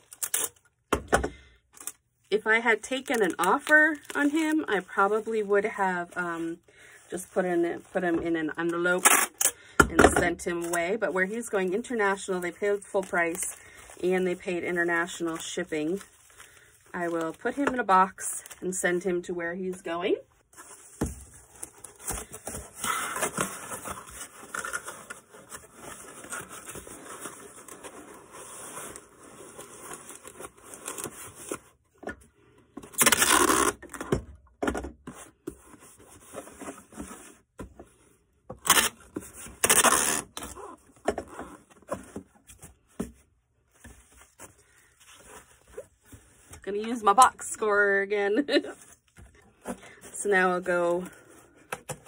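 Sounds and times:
rustling and scraping of cardboard: 0:20.4 - 0:32.1, 0:35.0 - 0:46.9.

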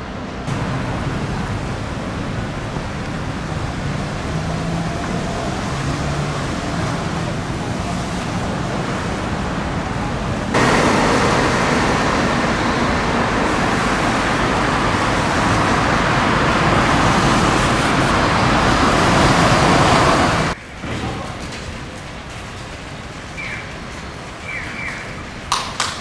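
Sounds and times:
passing cars hissing: 0:00.1 - 0:20.6.

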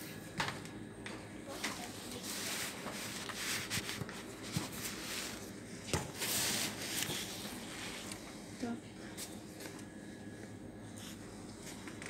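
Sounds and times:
rubbing and rustling on paper: 0:01.7 - 0:05.6, 0:06.2 - 0:08.2.

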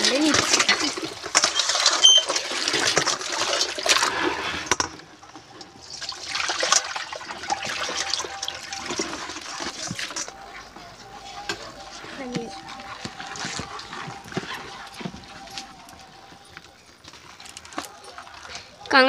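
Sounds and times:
water poured onto concrete floor: 0:00.0 - 0:04.9
running water: 0:00.0 - 0:19.0
water splashing in plastic basin: 0:00.0 - 0:19.0.

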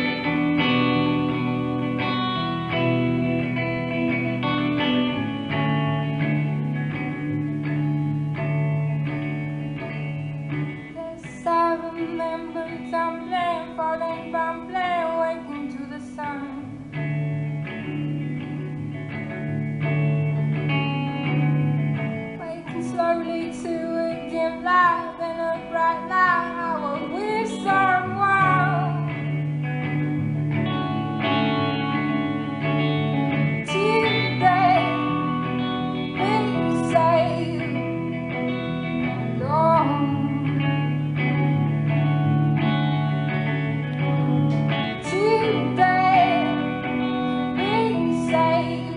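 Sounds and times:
electric guitar chords: 0:00.0 - 0:48.9
woman singing: 0:10.7 - 0:17.4, 0:22.4 - 0:29.4, 0:33.6 - 0:41.6, 0:44.7 - 0:48.9.

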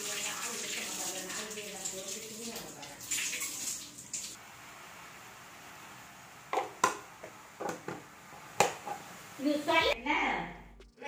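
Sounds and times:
tap water running: 0:00.0 - 0:10.0.

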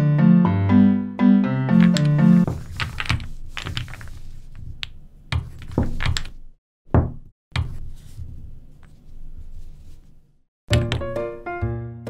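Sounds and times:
wooden blocks clacking on table: 0:01.8 - 0:06.4.

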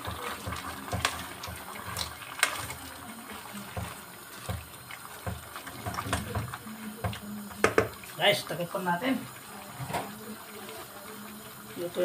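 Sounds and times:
wooden spoon stirring vegetables: 0:00.0 - 0:12.0
spoon knocking on pot: 0:03.7 - 0:08.0.

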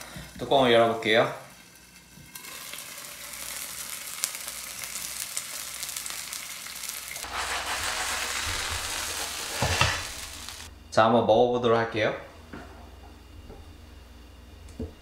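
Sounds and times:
food sizzling in frying pan: 0:01.5 - 0:10.7.

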